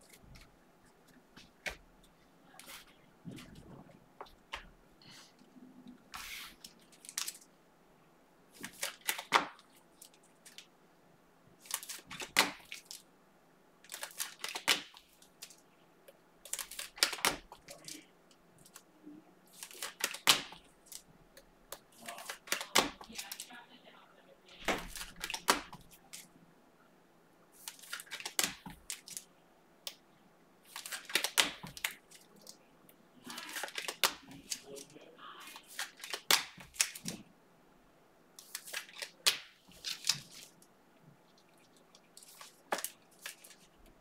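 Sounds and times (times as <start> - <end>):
cards clicking and sliding: 6.1 - 7.4, 8.6 - 10.7, 11.6 - 13.0, 13.9 - 15.6, 16.4 - 18.0, 19.5 - 23.5, 24.6 - 26.3, 27.6 - 29.3, 30.6 - 32.6, 33.3 - 34.9, 35.5 - 37.2, 38.4 - 40.6, 42.2 - 43.7
crinkling pack wrappers: 8.6 - 10.7, 11.6 - 13.1, 13.8 - 15.6, 16.4 - 18.0, 19.5 - 21.1, 21.7 - 23.5, 24.6 - 26.3, 27.6 - 29.3, 30.6 - 32.6, 33.2 - 37.2, 38.4 - 40.7, 41.4 - 43.8.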